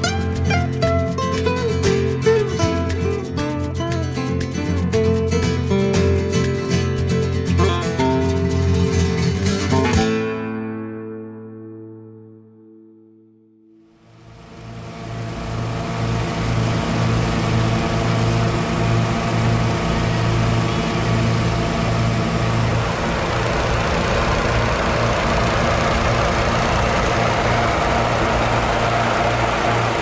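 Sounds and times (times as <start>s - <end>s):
engine humming: 14.1s - 30.0s.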